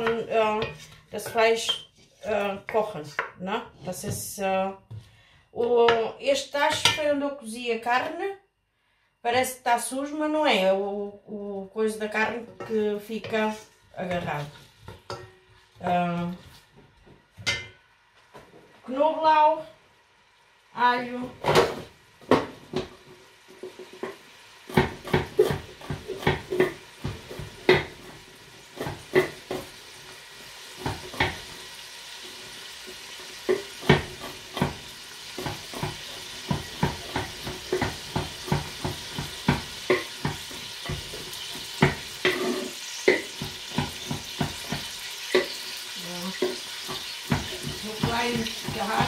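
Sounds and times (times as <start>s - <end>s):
onions sizzling in a pot: 0.0s - 5.1s, 12.1s - 49.0s
knife chopping on wooden board: 24.7s - 28.0s, 33.5s - 34.8s, 35.4s - 42.4s, 46.4s - 49.0s.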